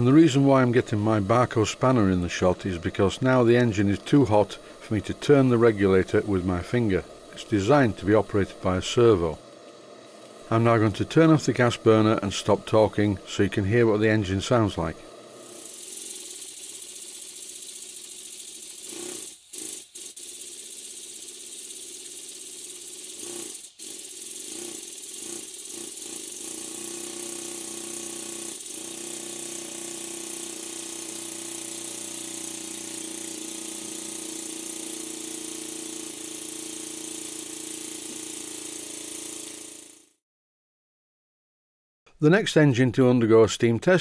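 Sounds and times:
steady engine hum: 0.0 - 15.6
steam hissing: 0.0 - 39.9
light mechanical rattle: 15.6 - 26.5.

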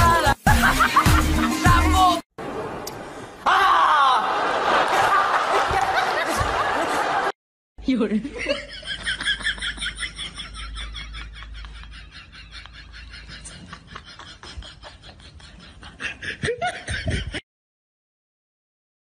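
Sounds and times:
person laughing in breathy bursts: 9.4 - 17.4.

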